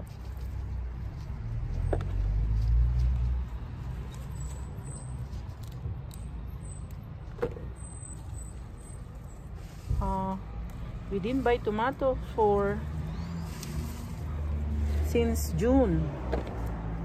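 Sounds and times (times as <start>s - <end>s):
low hum of traffic: 0.0s - 17.0s
vehicle engine rumble: 0.0s - 17.0s.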